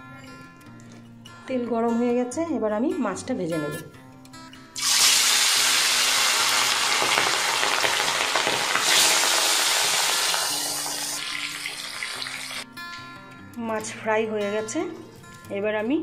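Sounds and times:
fish sizzling in hot oil: 4.8 - 12.6.

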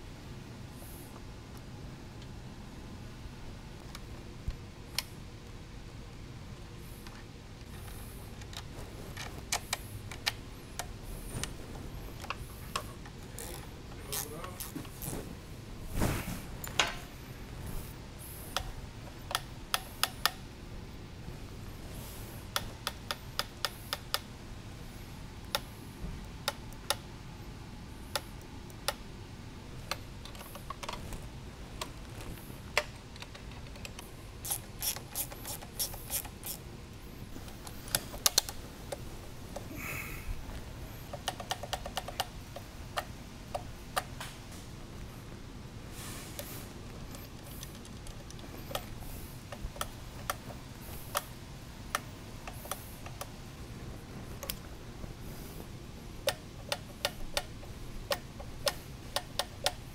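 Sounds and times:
steady low hum: 0.0 - 59.9
ratchet wrench clicks: 34.4 - 36.6.

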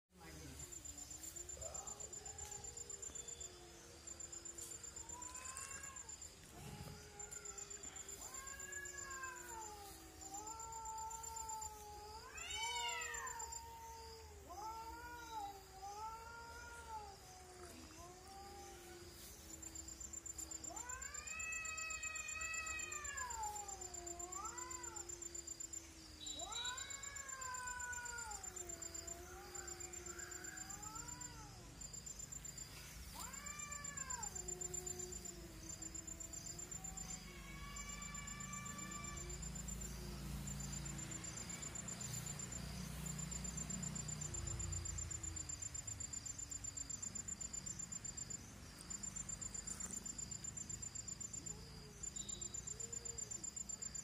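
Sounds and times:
cats caterwauling: 1.5 - 31.8, 32.7 - 42.2.

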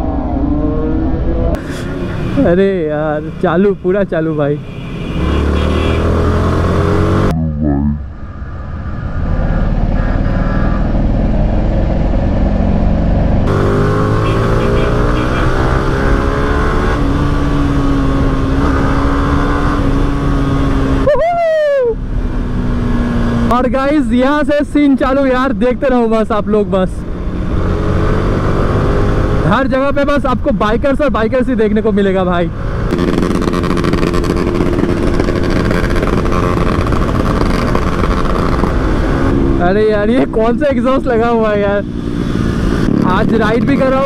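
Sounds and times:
motorcycle engine accelerating: 5.0 - 21.1, 22.0 - 23.6, 27.0 - 29.6, 32.5 - 44.0
wind rushing over microphone: 32.5 - 44.0.

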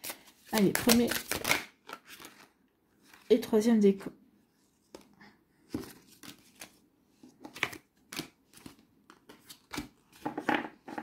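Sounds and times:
cards being shuffled: 0.0 - 3.3, 5.7 - 6.8, 7.4 - 11.0.

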